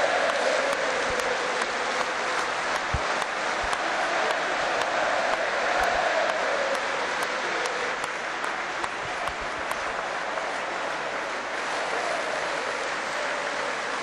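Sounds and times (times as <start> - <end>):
stadium crowd applauding: 0.0 - 14.0.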